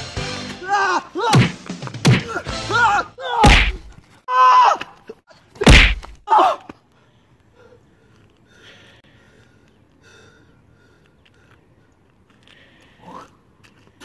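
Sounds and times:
shouted grunts and yells: 0:00.6 - 0:01.6, 0:02.2 - 0:04.9
punch impacts: 0:01.3 - 0:02.4, 0:03.4 - 0:04.0, 0:05.6 - 0:06.2.

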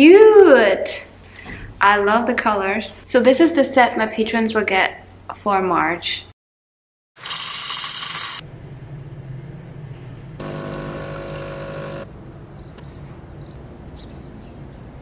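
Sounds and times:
espresso machine pump buzzing: 0:07.2 - 0:08.4, 0:10.4 - 0:12.1.

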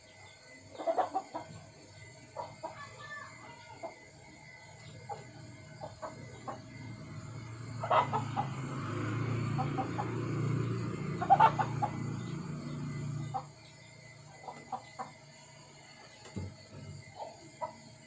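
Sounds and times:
chickens clucking: 0:00.7 - 0:01.7, 0:02.3 - 0:03.0, 0:04.6 - 0:13.6, 0:14.3 - 0:15.2.

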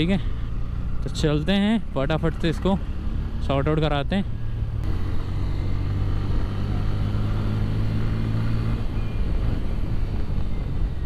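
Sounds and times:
road and wind noise: 0:00.0 - 0:11.0
motorcycle engine running: 0:04.6 - 0:11.0.

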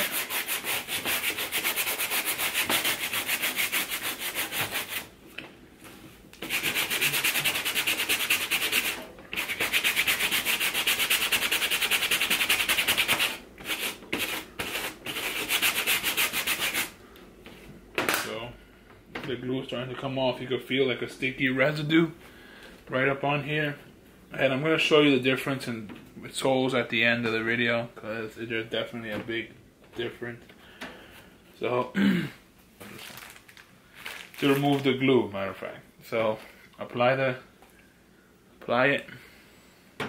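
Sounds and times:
brush scrubbing a shoe sole: 0:00.0 - 0:05.1, 0:06.4 - 0:16.9.

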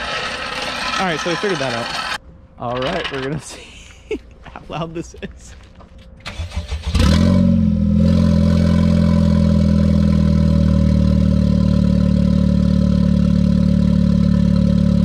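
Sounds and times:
car engine starting and idling: 0:06.2 - 0:15.0.

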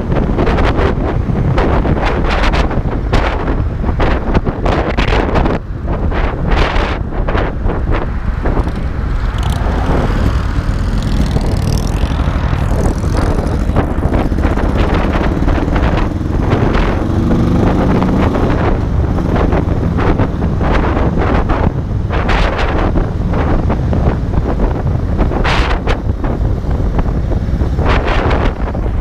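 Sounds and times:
wind buffeting microphone: 0:00.0 - 0:29.0
motorcycle engine cruising: 0:06.6 - 0:29.0.

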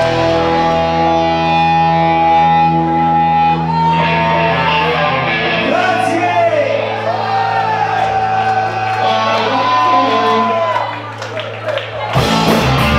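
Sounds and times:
distorted electric guitar chords: 0:00.0 - 0:07.2, 0:12.1 - 0:12.9.

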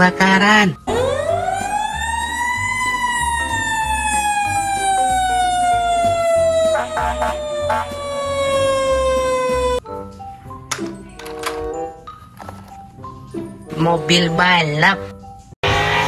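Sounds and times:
fire engine siren: 0:00.8 - 0:09.8.

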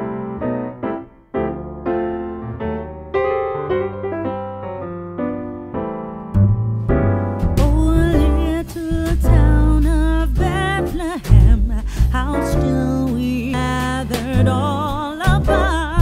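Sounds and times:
piano notes: 0:00.0 - 0:16.0
deep bass: 0:06.3 - 0:16.0.

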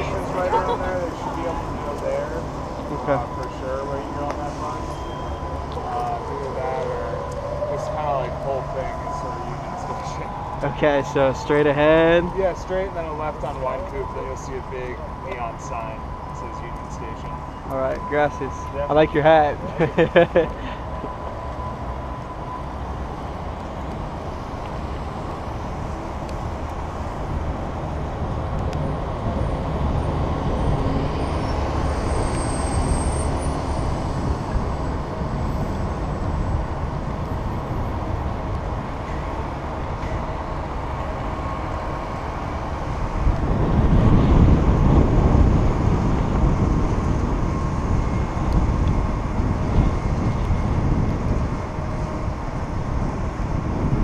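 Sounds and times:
bicycle tyre road noise: 0:00.0 - 0:54.0
street traffic: 0:00.0 - 0:54.0
wind noise: 0:18.0 - 0:54.0.

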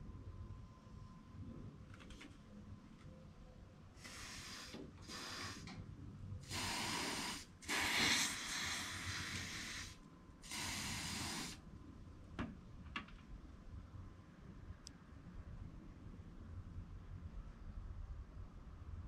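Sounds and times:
aerosol can spraying: 0:04.1 - 0:05.7, 0:06.5 - 0:09.9, 0:10.5 - 0:11.6.

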